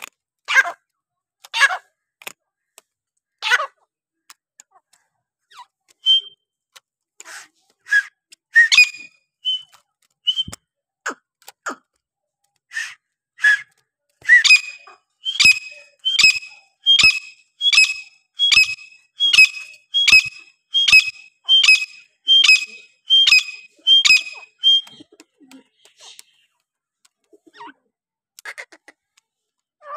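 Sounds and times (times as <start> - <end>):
bird whistled calls: 6.0 - 6.4, 7.9 - 9.7, 10.3 - 10.6, 12.7 - 25.1.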